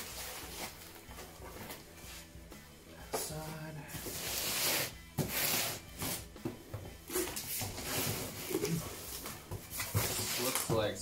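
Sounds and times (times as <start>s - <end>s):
packing tape ripping: 4.1s - 6.3s, 7.1s - 10.7s
cardboard scraping and rustling: 7.1s - 11.0s.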